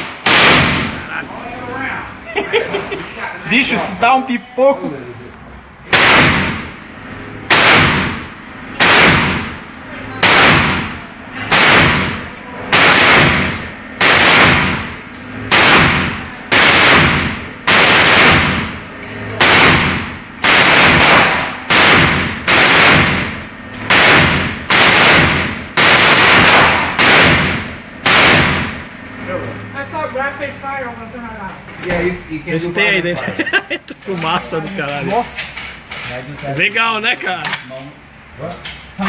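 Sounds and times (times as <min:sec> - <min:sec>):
pistol gunshots with echo: 0:00.0 - 0:01.0, 0:05.9 - 0:06.8, 0:07.5 - 0:09.6, 0:10.2 - 0:18.8, 0:19.4 - 0:28.8.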